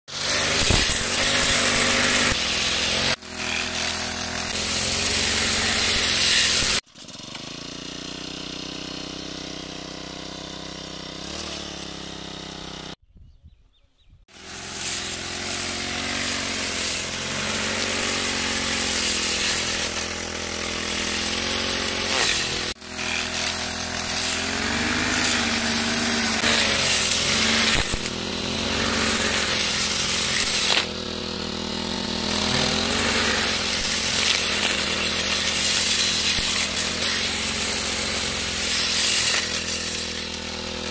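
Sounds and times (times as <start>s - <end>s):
blade slashing through grass: 0.1s - 6.8s, 14.3s - 40.9s
brush cutter engine running: 0.1s - 13.0s, 14.3s - 40.9s.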